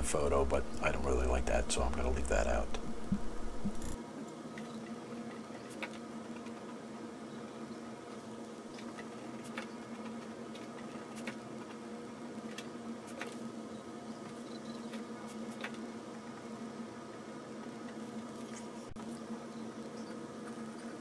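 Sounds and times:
low hum: 0:00.0 - 0:04.0.

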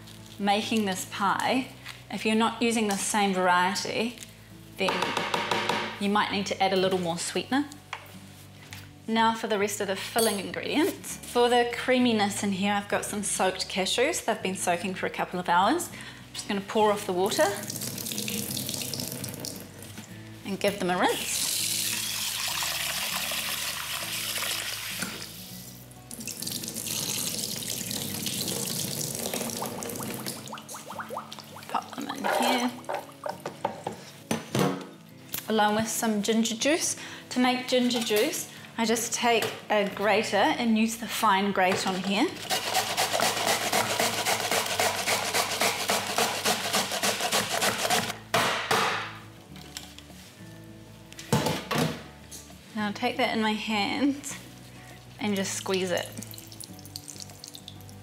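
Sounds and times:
tap water running into bowl: 0:17.6 - 0:19.7, 0:21.6 - 0:25.2, 0:26.2 - 0:31.5
ginger rasping on grater: 0:42.4 - 0:48.1.

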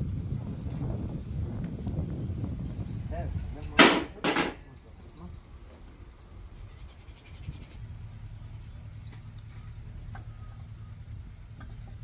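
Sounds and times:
low steady hum: 0:00.0 - 0:12.0
faint bird chirps: 0:06.6 - 0:12.0.

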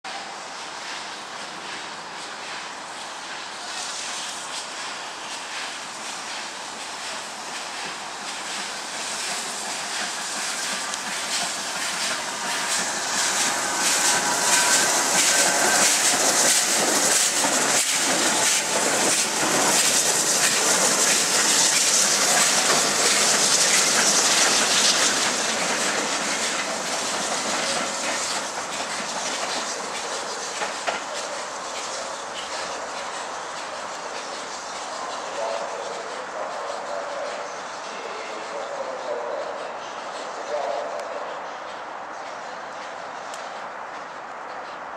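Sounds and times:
train wheels clattering over rail joints: 0:05.4 - 0:38.9.

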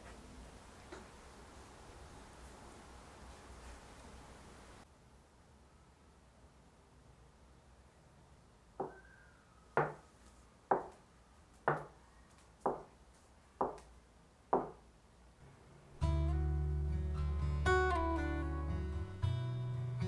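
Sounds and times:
acoustic guitar music: 0:15.9 - 0:20.0.

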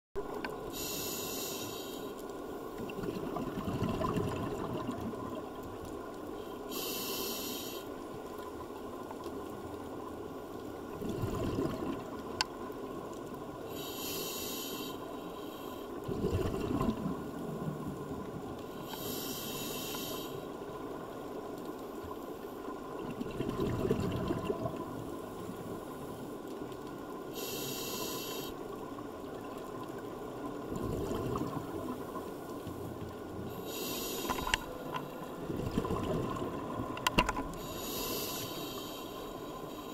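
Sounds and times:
hissing regulator inhale: 0:00.7 - 0:02.2, 0:06.4 - 0:08.0, 0:13.7 - 0:16.0, 0:18.7 - 0:20.6, 0:27.3 - 0:28.6, 0:33.5 - 0:35.2, 0:37.5 - 0:39.9
bubbling exhaled air: 0:02.9 - 0:05.2, 0:11.0 - 0:12.1, 0:16.1 - 0:17.2.

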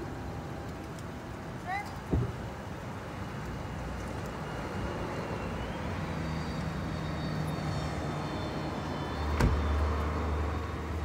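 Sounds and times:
low engine hum: 0:00.0 - 0:11.0
vehicle engine and traffic rumble: 0:00.0 - 0:11.0
faint high whine: 0:04.4 - 0:11.0.

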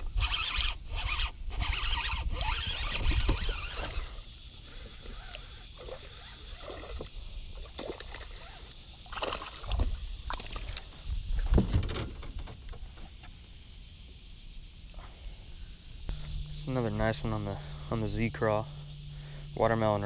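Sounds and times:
fish thrashing and splashing: 0:09.0 - 0:10.9.

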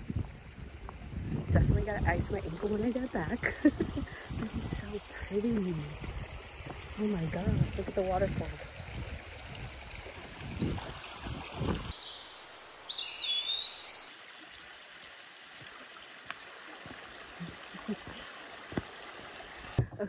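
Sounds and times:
creek water over rocks: 0:00.0 - 0:20.0
high whistling tone: 0:13.2 - 0:14.1.

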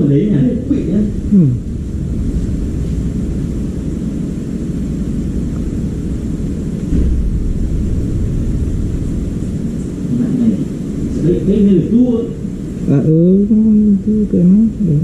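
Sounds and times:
low rumbling noise: 0:00.0 - 0:15.0.

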